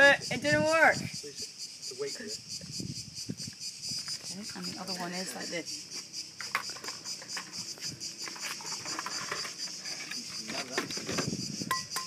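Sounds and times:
cicadas droning: 0:00.0 - 0:12.0
rustling and knocks: 0:06.4 - 0:11.4.

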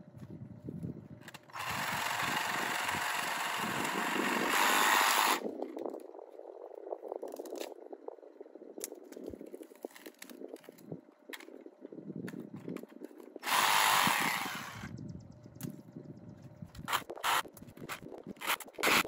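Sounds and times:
cordless saw buzzing: 0:01.5 - 0:05.4, 0:13.4 - 0:14.9.

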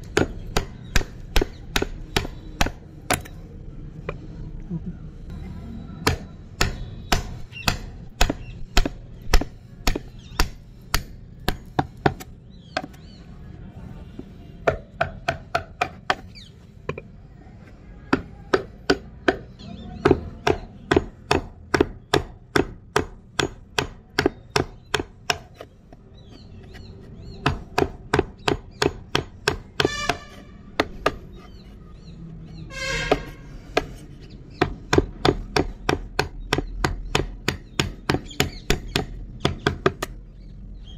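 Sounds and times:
chisel knocking into wood: 0:18.1 - 0:25.7, 0:27.4 - 0:31.7, 0:33.0 - 0:40.2.

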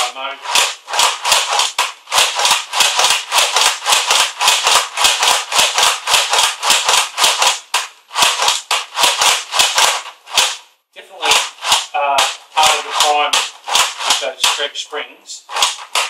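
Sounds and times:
spring plungers snapping: 0:11.2 - 0:14.7.

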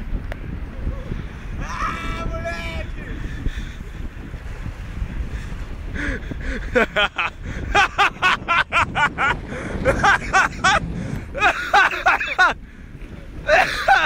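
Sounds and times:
wind rumble on microphone: 0:00.0 - 0:14.0
person laughing hard: 0:06.0 - 0:12.6, 0:13.4 - 0:14.0.

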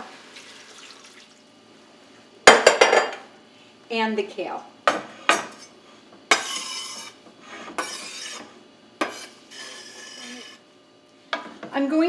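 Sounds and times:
knife scraping a cutting board: 0:06.3 - 0:10.6.

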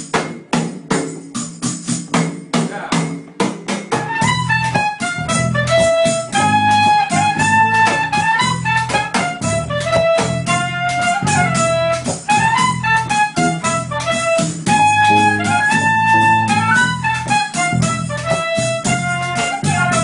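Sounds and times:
drum rhythm: 0:00.0 - 0:20.0
folk melody with bass line: 0:00.0 - 0:20.0.

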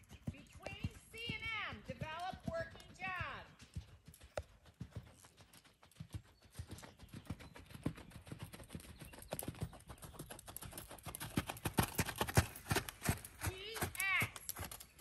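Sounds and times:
horse hoofbeats on sand: 0:00.0 - 0:15.0.

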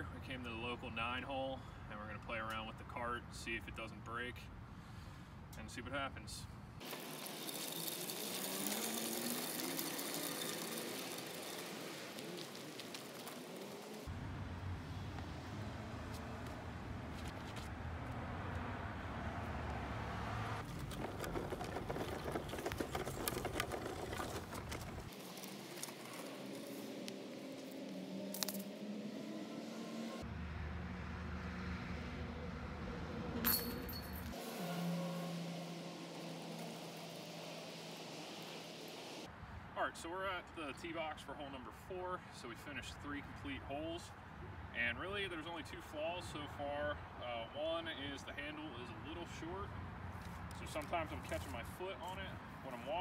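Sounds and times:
cart wheels crunching on gravel: 0:06.8 - 0:14.1, 0:20.6 - 0:28.6, 0:50.2 - 0:53.0
metallic jingle: 0:33.4 - 0:34.8.

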